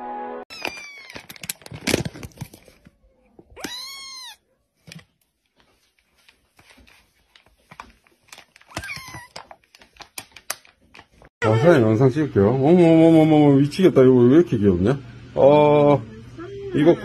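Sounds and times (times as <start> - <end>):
crackling handling noise: 0.5 - 4.0, 4.7 - 11.3
kitten meowing: 3.6 - 4.4.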